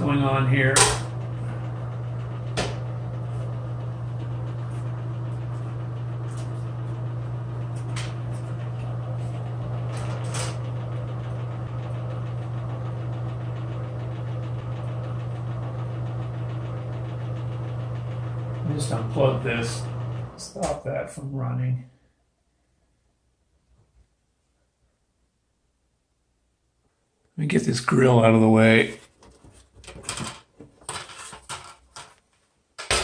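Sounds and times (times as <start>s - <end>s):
exhaust fan humming: 0.0s - 21.7s.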